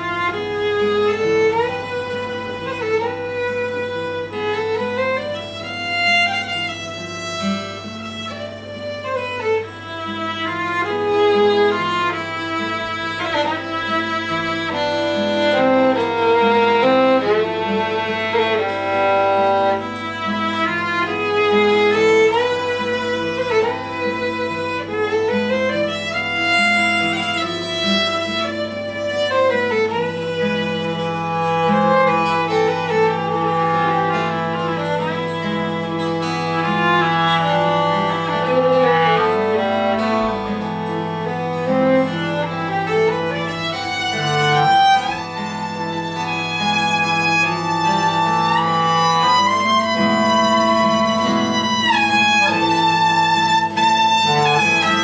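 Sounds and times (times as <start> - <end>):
acoustic guitar: 0.0 - 55.0
clarinet: 0.0 - 55.0
violin melody: 0.0 - 55.0.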